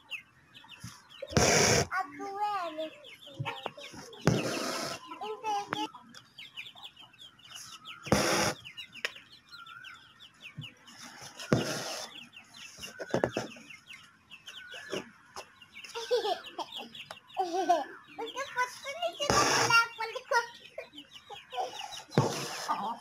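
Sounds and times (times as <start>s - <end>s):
chickens clucking: 0.0s - 23.0s
thread rasping through cloth: 1.3s - 1.9s, 4.2s - 5.0s, 8.1s - 8.6s, 11.5s - 12.1s, 19.3s - 19.7s, 22.2s - 22.8s.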